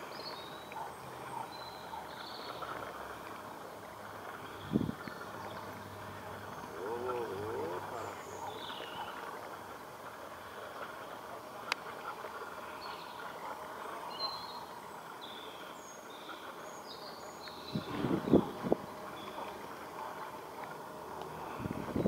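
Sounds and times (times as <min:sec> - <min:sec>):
small birds chirping: 0:00.0 - 0:09.2, 0:12.6 - 0:20.3
outdoor background noise: 0:00.0 - 0:22.0.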